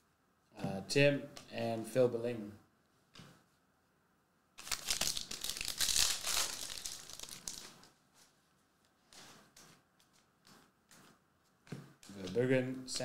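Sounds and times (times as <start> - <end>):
foil wrapper tearing and crinkling: 4.6 - 7.8
cards rustling: 4.6 - 7.9.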